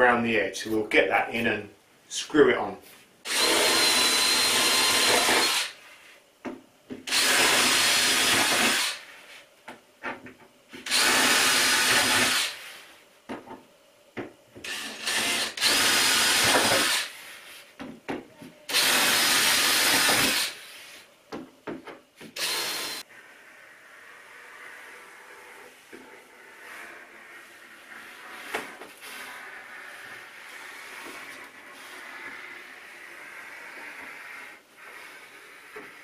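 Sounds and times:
cordless drill driving screws: 3.3 - 5.7, 7.1 - 9.0, 10.9 - 12.6, 14.6 - 17.1, 18.7 - 20.6, 22.4 - 23.0.

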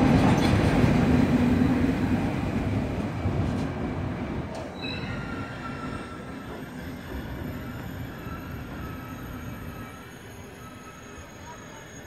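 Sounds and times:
train rolling and motor noise: 0.0 - 4.8
high wheel squeal: 4.7 - 12.0.

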